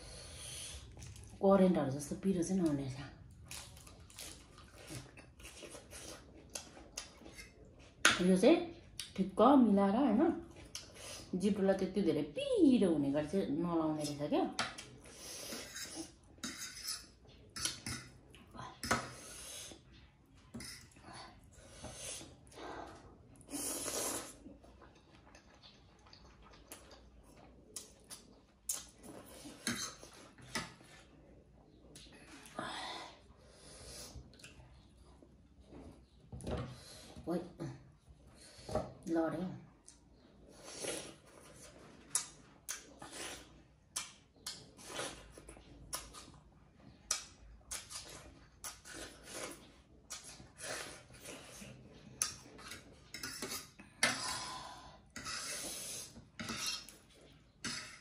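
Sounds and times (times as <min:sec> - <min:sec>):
wet chewing: 0:03.2 - 0:08.0, 0:23.4 - 0:30.9, 0:40.8 - 0:54.0.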